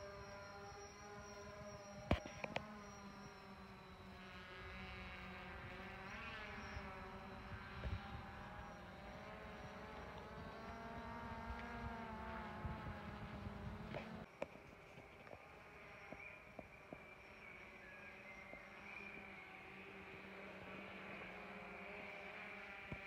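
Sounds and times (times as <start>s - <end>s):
drone propellers buzzing: 0.0s - 14.3s, 15.3s - 23.0s.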